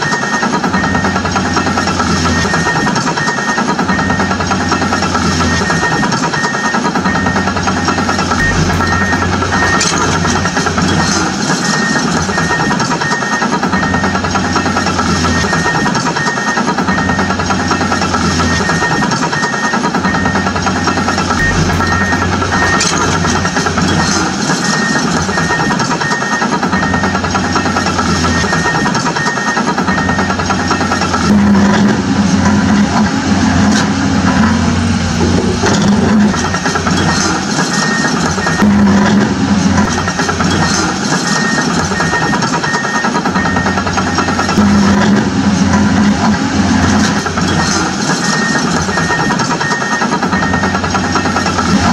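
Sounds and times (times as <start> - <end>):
toy excavator engine sound: 0.0 - 51.9
short high beep: 5.8 - 14.0, 19.4 - 31.0
deep motor hum: 8.0 - 12.6, 21.0 - 25.7, 31.2 - 37.5.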